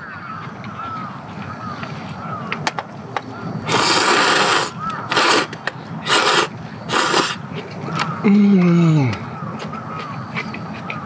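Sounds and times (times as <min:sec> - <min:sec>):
man slurping noodles: 0:03.7 - 0:07.4.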